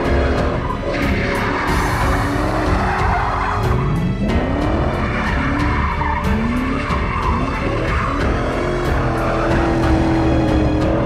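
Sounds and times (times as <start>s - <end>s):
background music with steady beat: 0.0s - 11.0s
car engine revving: 0.0s - 11.0s
tyres skidding and squealing: 0.0s - 11.0s.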